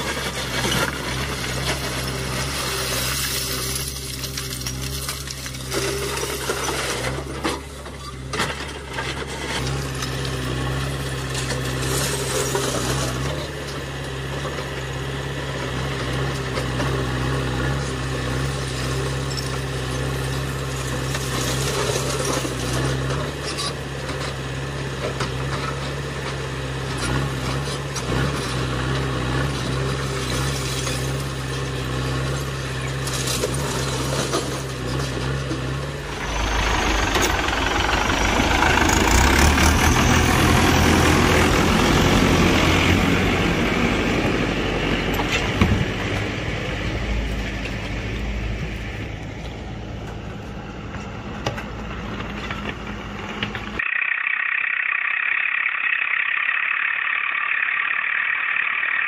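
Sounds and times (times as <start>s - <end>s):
diesel engine running: 0.0s - 53.9s
stones clattering and scraping: 0.1s - 10.2s.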